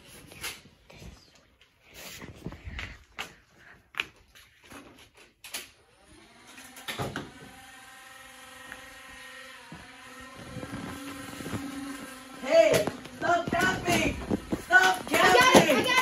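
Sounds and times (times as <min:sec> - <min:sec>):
toy blaster motor whirring: 0:05.5 - 0:16.0
footsteps: 0:09.6 - 0:16.0.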